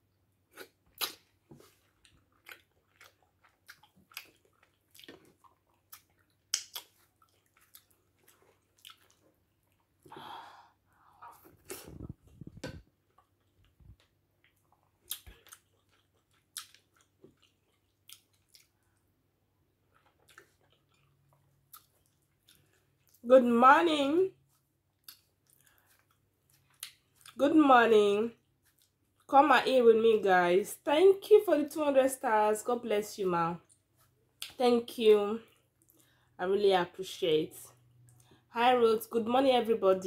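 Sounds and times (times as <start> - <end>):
wet mouth smacks and chewing: 0.5 - 10.0, 11.4 - 19.0, 19.9 - 23.2, 24.5 - 27.4, 28.5 - 29.3.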